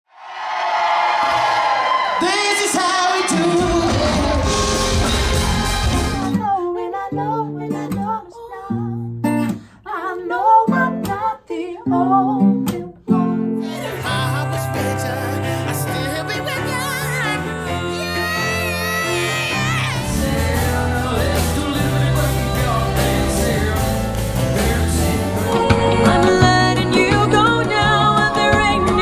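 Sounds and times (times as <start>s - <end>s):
acoustic guitar chords: 3.4s - 6.6s, 12.4s - 28.0s
woman singing: 6.3s - 9.2s, 9.8s - 23.7s, 24.6s - 29.0s
loud dense music: 13.8s - 25.5s.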